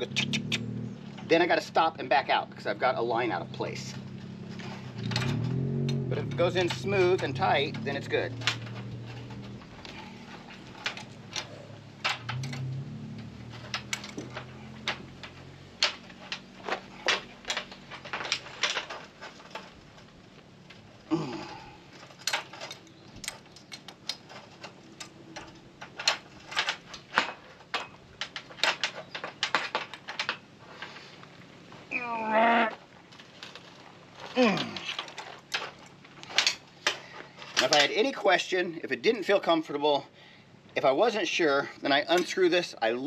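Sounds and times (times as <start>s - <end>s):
metal wrenches clicking: 2.9s - 31.3s, 33.2s - 38.2s.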